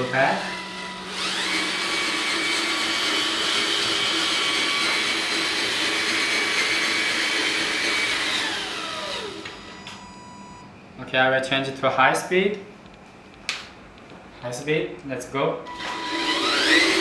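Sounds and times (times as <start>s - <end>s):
electric motor and gearbox whining: 0.0s - 10.6s, 15.7s - 17.0s.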